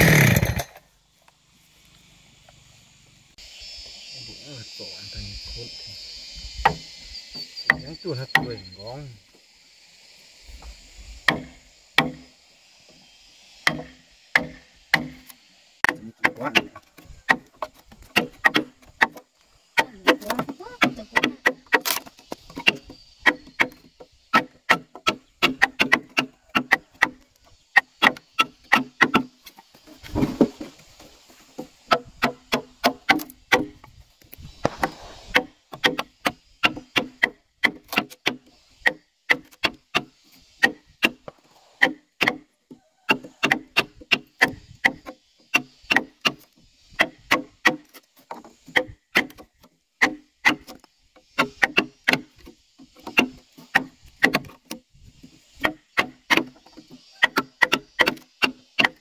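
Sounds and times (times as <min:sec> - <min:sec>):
rough rasping noise: 0:00.0 - 0:00.8
blade knocking on wooden pole: 0:35.4 - 0:42.4, 0:55.6 - 0:59.0.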